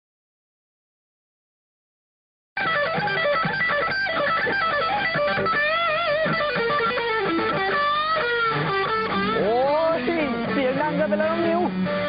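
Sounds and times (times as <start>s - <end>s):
electric guitar lead: 2.6s - 12.0s.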